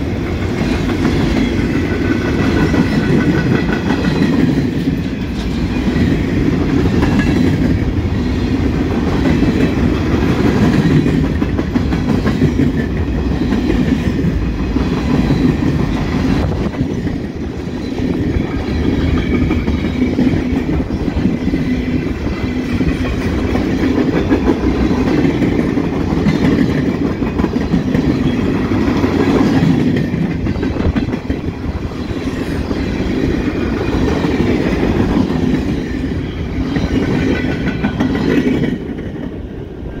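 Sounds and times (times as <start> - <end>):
freight train wheels rumbling on rails: 0.0 - 40.0.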